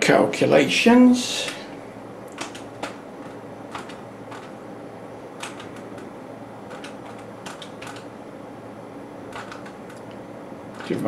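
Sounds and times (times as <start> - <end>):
steady low hum: 0.0 - 11.0
calculator keys clicking: 2.3 - 4.6, 5.4 - 6.1, 6.7 - 8.1, 9.3 - 11.0.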